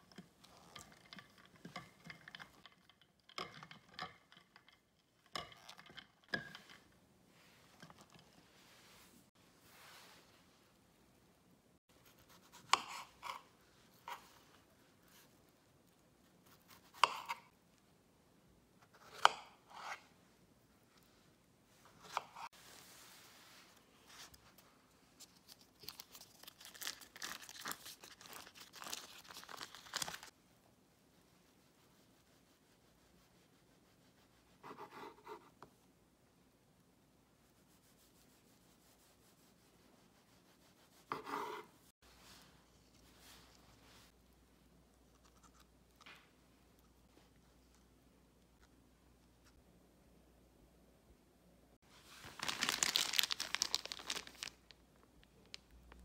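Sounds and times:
paper liner crinkling and tearing: 25.3 - 30.3, 52.2 - 54.8.

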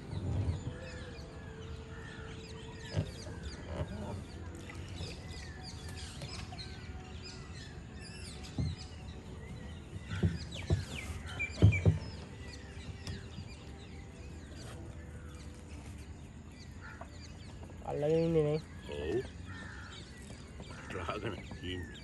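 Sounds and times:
small birds chirping: 0.1 - 22.0
low knocks: 10.0 - 13.4.

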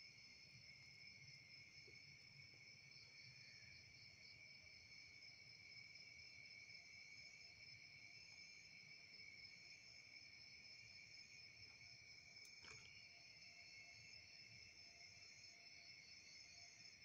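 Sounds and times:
night insects trilling: 0.1 - 17.0.

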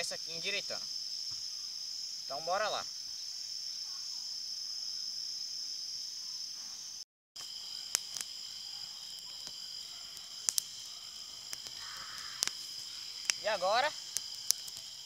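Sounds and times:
high-pitched insect chorus: 0.0 - 15.0
sharp snaps: 7.8 - 8.4, 9.1 - 15.0.

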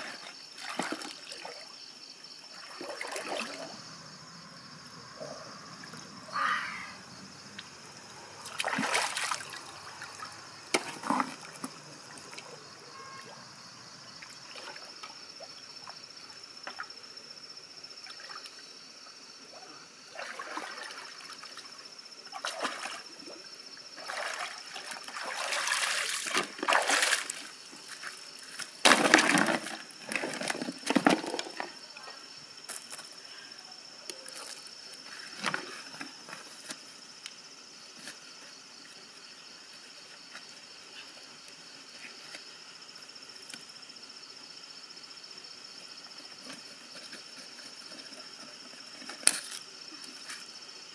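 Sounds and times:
river water splashing: 2.5 - 3.9, 7.6 - 13.3, 20.1 - 21.7, 22.3 - 27.8.

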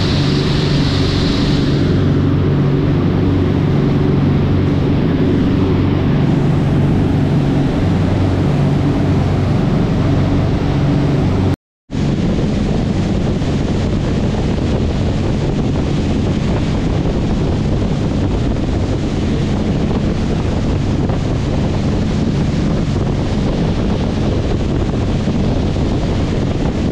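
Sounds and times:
water spray: 0.0 - 2.1
boat engines droning: 0.0 - 26.9
wake water rushing: 0.0 - 26.9
wind buffeting microphone: 0.0 - 26.9.

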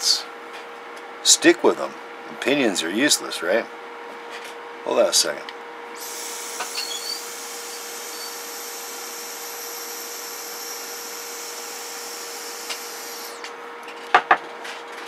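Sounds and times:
cooling fan airy hiss: 4.9 - 13.6.

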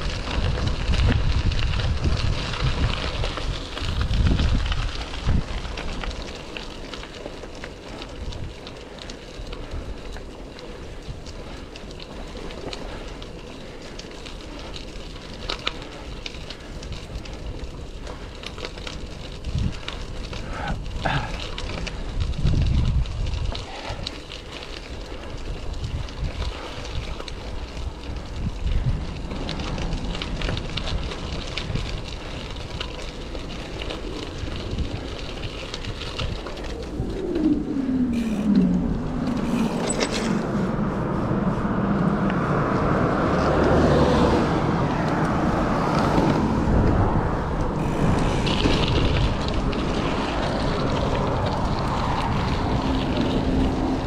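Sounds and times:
wind noise on microphone: 0.0 - 54.0
motor vehicle passing: 23.7 - 54.0.

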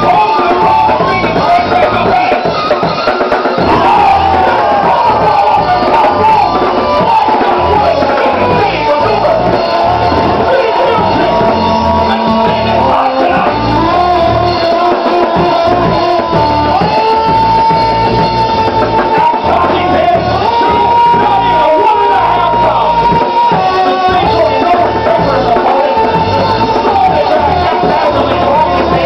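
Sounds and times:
loud rock music: 0.0 - 29.0.

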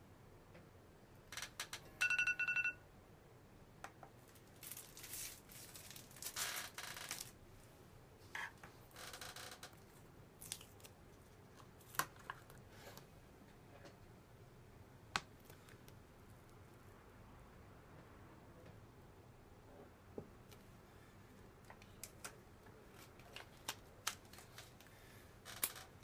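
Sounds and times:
phone timer alarm beeping: 2.0 - 2.8.

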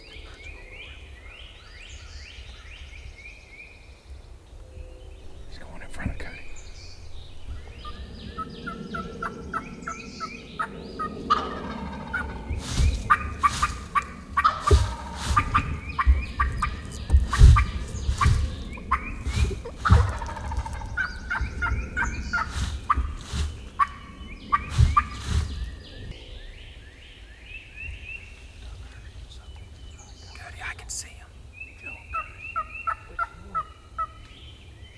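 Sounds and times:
low thumps: 5.2 - 9.2, 12.1 - 26.2
turkeys gobbling: 10.6 - 25.5, 32.1 - 34.2.

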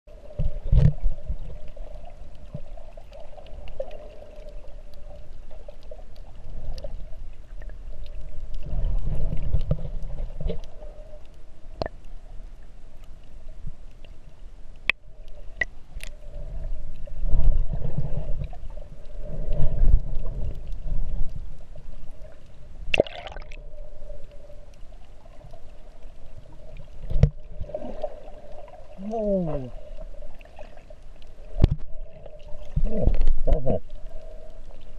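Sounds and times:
muffled rushes of water: 0.1 - 34.9.

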